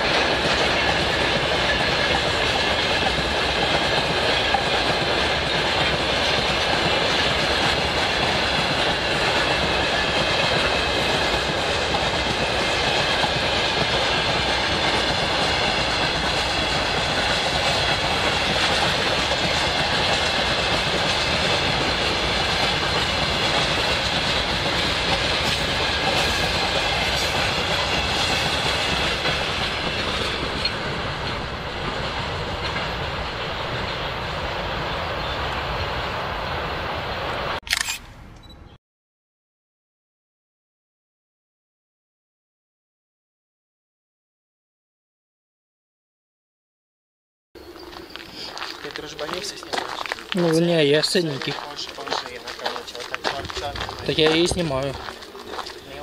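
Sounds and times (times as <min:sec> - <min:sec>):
train wheels clattering: 0:00.0 - 0:36.7, 0:47.8 - 0:56.0
short burst of noise: 0:37.6 - 0:38.7.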